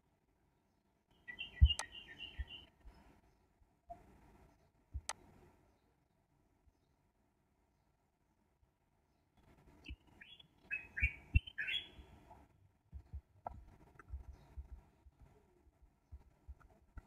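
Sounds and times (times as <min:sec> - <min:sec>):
bird chirping: 0:00.7 - 0:07.1, 0:09.1 - 0:16.8
soft low knocks and clicks: 0:01.5 - 0:03.1, 0:04.9 - 0:05.4, 0:12.2 - 0:17.0.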